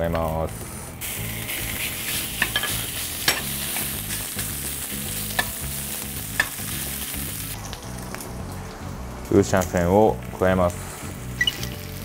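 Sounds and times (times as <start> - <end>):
meat sizzling in frying pan: 0.5 - 12.0
metal turner knocking pan: 2.4 - 3.5.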